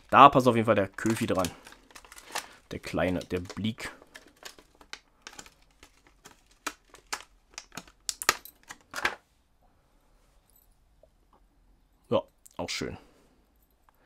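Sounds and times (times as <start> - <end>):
plastic rustle: 0.0 - 9.1
plastic packaging crinkling: 0.0 - 9.2.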